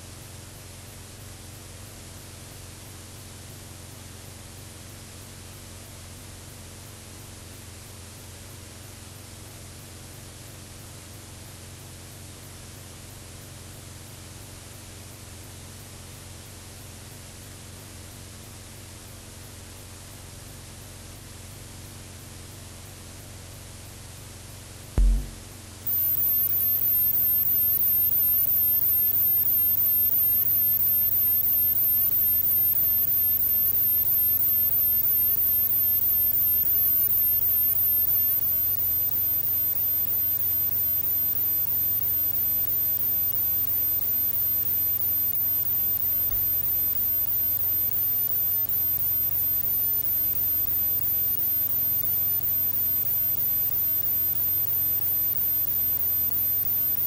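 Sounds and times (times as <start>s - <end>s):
low hum: 25.0s - 26.8s
thin high whine: 25.0s - 57.0s.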